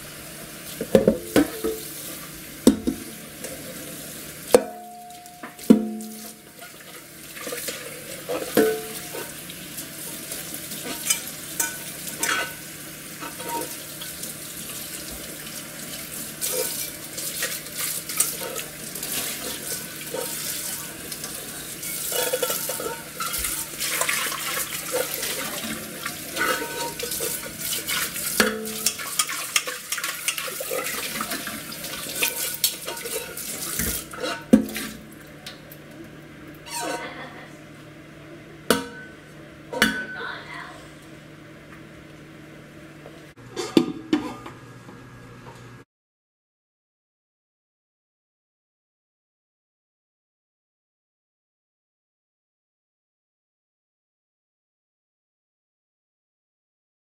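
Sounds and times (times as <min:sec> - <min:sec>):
tap water running into sink: 0:00.6 - 0:12.3, 0:13.2 - 0:35.0
pot knocking against sink: 0:00.8 - 0:01.9, 0:02.6 - 0:03.1, 0:04.5 - 0:06.4, 0:08.3 - 0:09.2, 0:38.7 - 0:39.2, 0:39.8 - 0:40.2
water poured from pot: 0:13.2 - 0:35.0.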